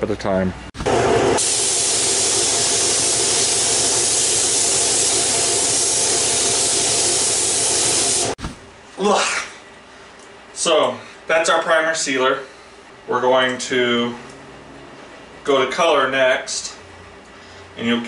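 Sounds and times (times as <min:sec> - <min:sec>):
paint spray gun hissing: 0:01.4 - 0:08.4.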